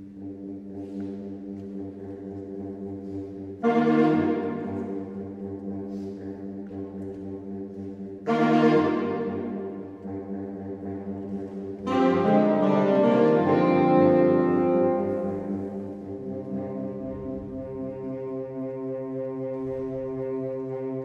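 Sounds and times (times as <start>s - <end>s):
saxophone quartet sustained chords: 0.0s - 21.0s.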